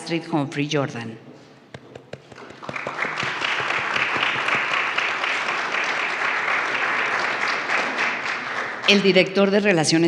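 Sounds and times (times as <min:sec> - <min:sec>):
people applauding: 0:01.7 - 0:09.4.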